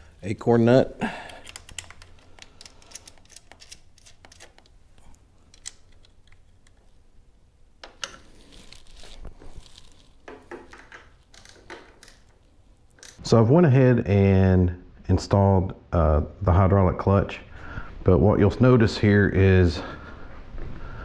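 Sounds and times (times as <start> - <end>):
small metal clicks: 1.2 - 7.0, 10.4 - 13.2
hands rustling: 8.2 - 11.6.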